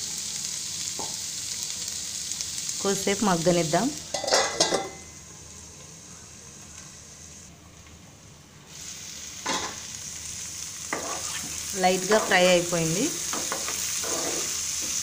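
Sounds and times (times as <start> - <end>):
cabbage sizzling in oil: 0.0 - 7.4, 8.7 - 15.0
metal lid clanking: 4.1 - 5.0.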